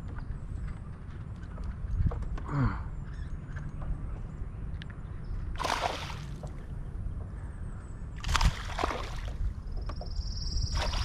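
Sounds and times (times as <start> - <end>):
wind rumble: 0.0 - 11.0
water splash: 5.6 - 6.4, 8.2 - 9.4, 10.7 - 11.0
water lapping against boat hull: 5.6 - 7.4, 8.2 - 11.0.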